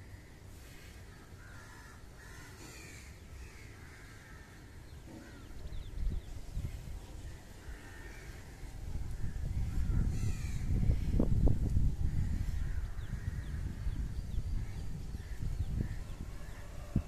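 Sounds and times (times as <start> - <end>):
crows cawing: 1.0 - 5.6, 7.2 - 10.8.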